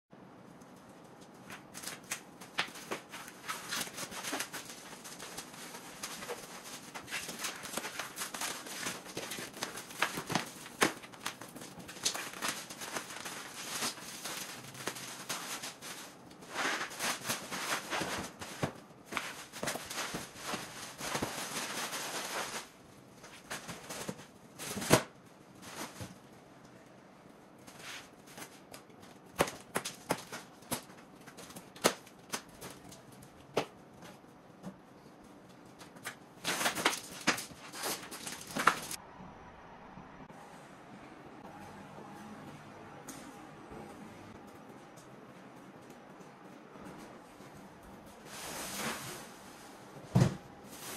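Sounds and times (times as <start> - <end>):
plastic film crinkling: 0.8 - 26.3, 27.6 - 34.2, 35.6 - 39.0.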